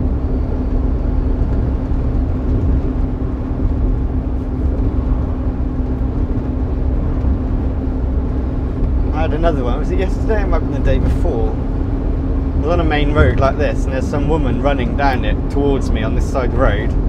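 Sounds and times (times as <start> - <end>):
constant hum: 0.0 - 17.0
lorry diesel engine rumble: 0.0 - 17.0.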